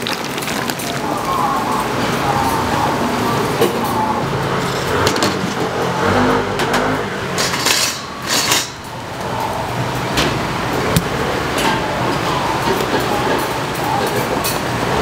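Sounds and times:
street market background noise: 0.0s - 15.0s
motor vehicle passing: 1.1s - 11.5s.

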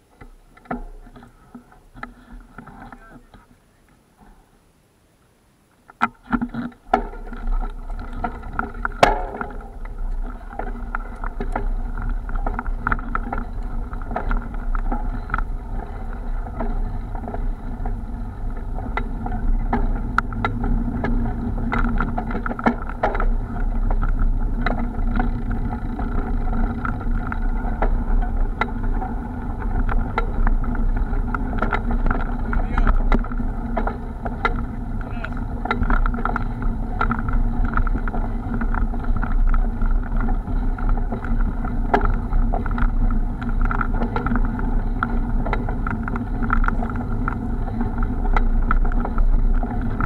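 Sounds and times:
knocks and rattles from bumps: 6.0s - 50.0s
mountain bike rumbling on dirt: 6.0s - 50.0s.

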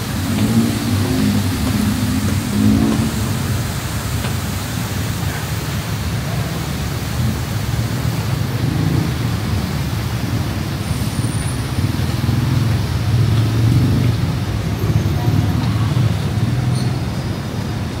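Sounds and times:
city street traffic rumble: 0.0s - 18.0s.

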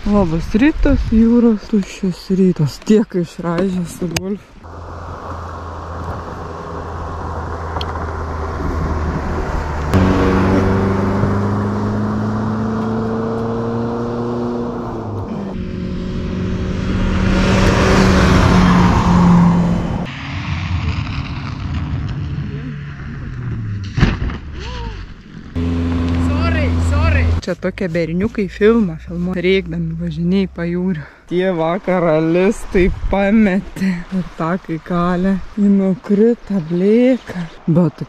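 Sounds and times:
car passing by: 4.6s - 23.7s, 25.6s - 27.4s
vehicle engine running: 4.7s - 20.1s, 25.5s - 32.1s.

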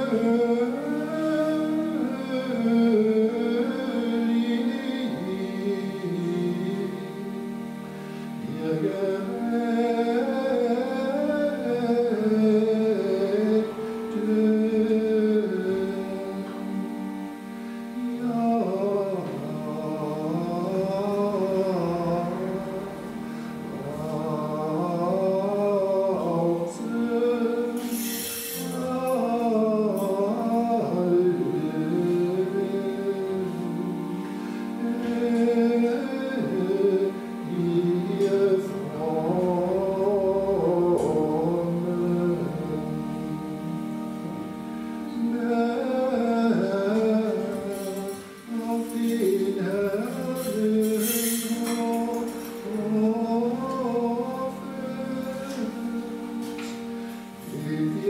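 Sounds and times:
chant singing: 0.0s - 58.0s
low sustained accompanying notes: 0.0s - 58.0s
brief hiss: 27.8s - 28.9s.

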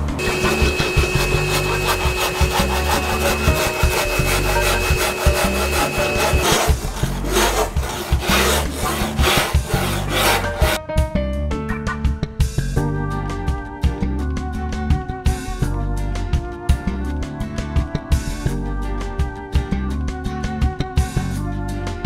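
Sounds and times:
hand file rasping on filler: 0.2s - 10.8s.

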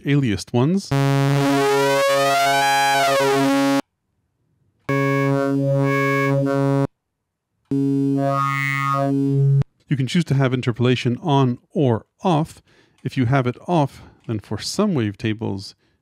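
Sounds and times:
low synthesizer note: 0.9s - 3.8s, 4.9s - 6.9s, 7.7s - 9.6s.

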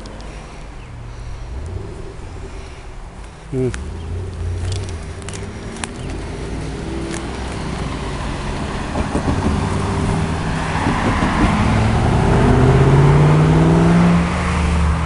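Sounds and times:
car engine approaching: 0.0s - 15.0s
road traffic: 0.0s - 15.0s
sharp clicks: 3.2s - 6.2s.

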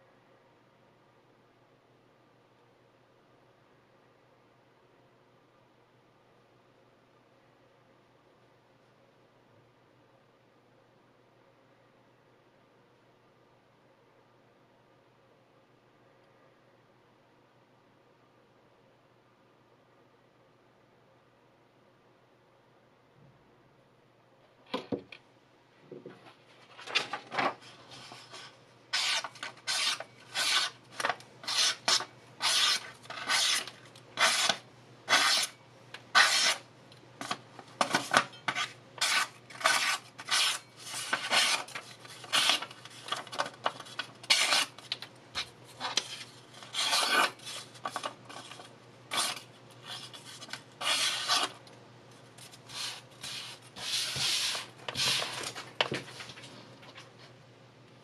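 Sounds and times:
knife slicing through paper: 28.9s - 35.6s, 36.2s - 36.6s, 38.5s - 43.2s, 44.2s - 44.8s, 46.0s - 51.6s.

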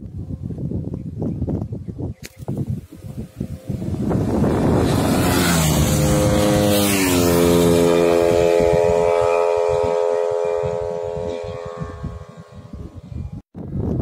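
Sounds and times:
motorcycles passing at speed: 2.9s - 13.1s.

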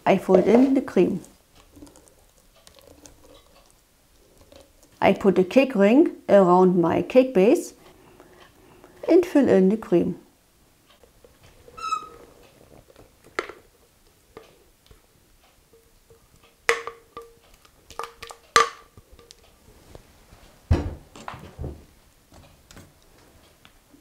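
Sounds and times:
utensil scraping and tapping bowl: 0.2s - 5.0s, 15.7s - 19.4s
brief squeak: 11.8s - 12.2s.

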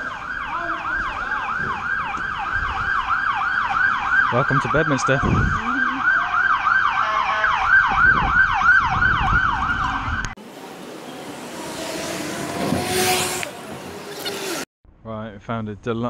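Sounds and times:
siren yelping: 0.0s - 10.4s
street traffic noise: 0.0s - 14.7s.

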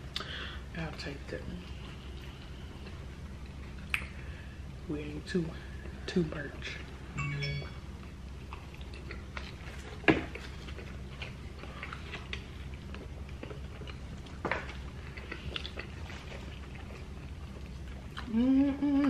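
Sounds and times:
people chewing and biting: 8.0s - 19.0s.

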